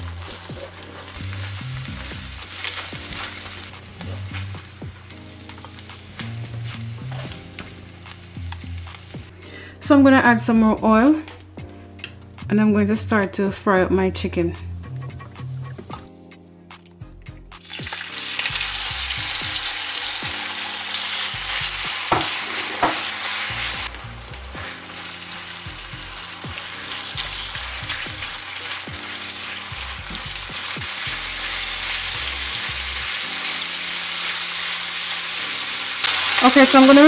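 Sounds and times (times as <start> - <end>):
chicken sizzling in hot oil: 0.0 - 9.3, 17.6 - 37.0.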